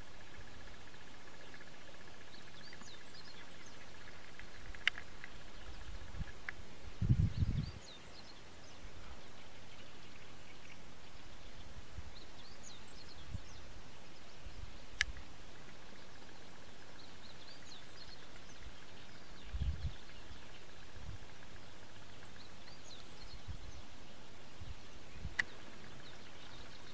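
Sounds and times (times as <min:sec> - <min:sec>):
open-air background hiss: 0:00.0 - 0:26.9
small birds chirping: 0:00.0 - 0:26.9
sharp click: 0:15.0 - 0:15.2.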